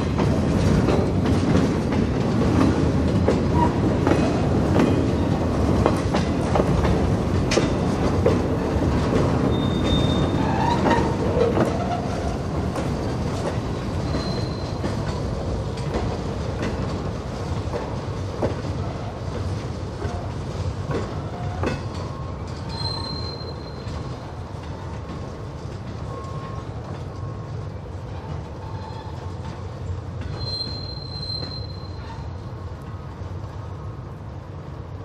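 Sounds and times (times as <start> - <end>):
train wheels clacking over rail joints: 0.0 - 27.4
high wheel squeal: 9.5 - 12.2, 14.0 - 14.8, 22.1 - 24.0, 30.3 - 32.3.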